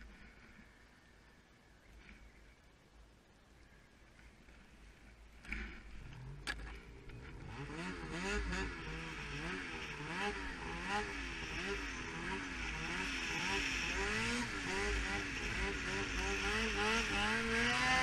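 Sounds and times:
snowmobile engine revving: 5.4s - 18.0s.

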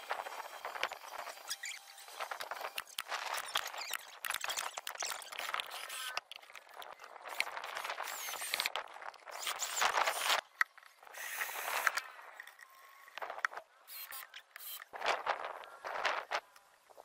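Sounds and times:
cordless drill driving screws: 0.0s - 6.4s, 7.2s - 10.5s, 11.1s - 12.8s, 13.9s - 14.9s.

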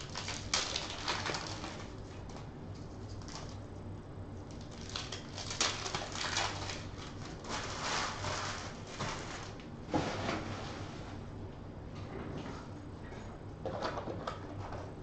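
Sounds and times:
card pack wrappers crinkling: 0.0s - 2.4s, 4.5s - 9.6s.

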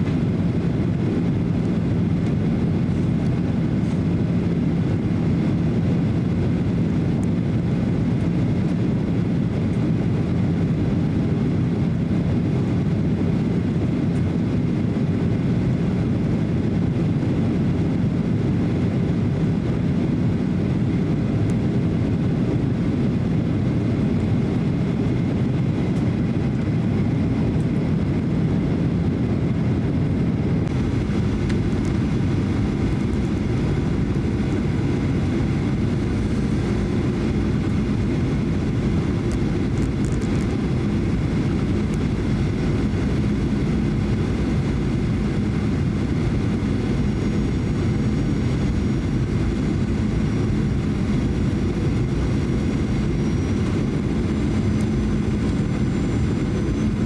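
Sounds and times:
airflow past fuselage: 0.0s - 57.0s
jet engines rumbling: 0.0s - 57.0s.

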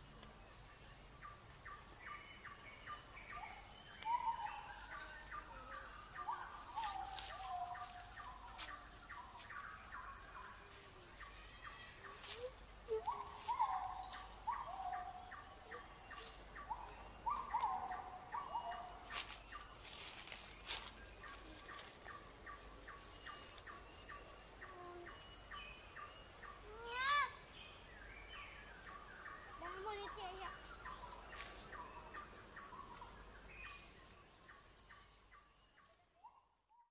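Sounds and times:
birds swooping calls: 11.5s - 15.4s.

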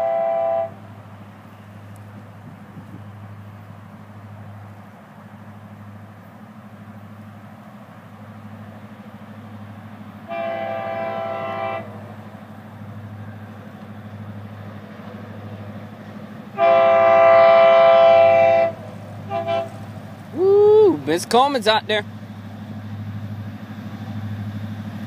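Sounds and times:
locomotive air horn blasts: 0.0s - 0.8s, 10.3s - 12.0s, 16.5s - 19.9s
train rumbling: 0.0s - 25.0s.

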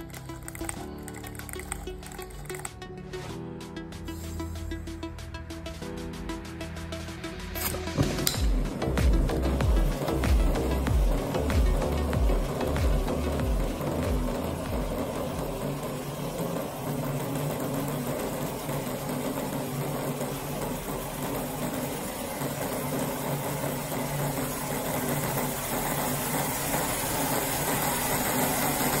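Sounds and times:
model engine running: 0.0s - 3.4s, 7.6s - 29.0s.

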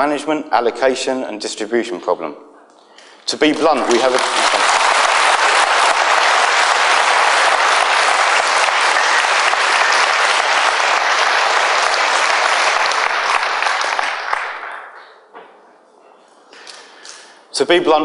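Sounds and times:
audience applauding: 3.5s - 15.0s.

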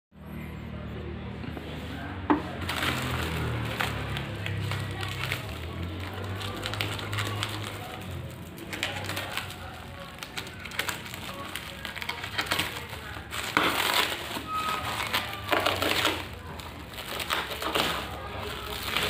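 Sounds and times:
plastic wrap crinkling and tearing: 2.0s - 19.0s
knife cutting plastic: 2.3s - 19.0s.

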